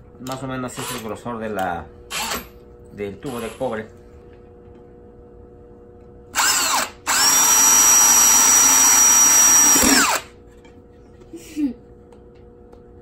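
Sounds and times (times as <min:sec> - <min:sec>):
cordless drill drilling through tin: 0:06.4 - 0:10.3.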